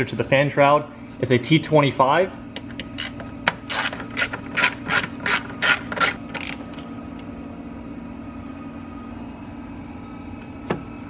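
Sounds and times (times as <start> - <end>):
hand ratchet clicking: 2.8 - 6.9
low hum: 5.2 - 11.0.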